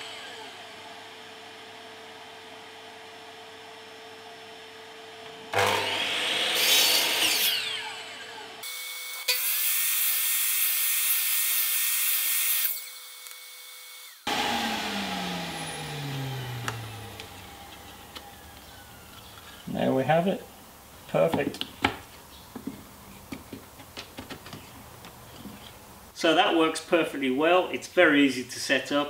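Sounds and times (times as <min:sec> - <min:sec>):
mitre saw cutting wood: 0:00.0 - 0:01.2, 0:05.5 - 0:19.9
saw motor winding down whine: 0:00.0 - 0:01.4, 0:05.5 - 0:09.4, 0:12.4 - 0:19.7.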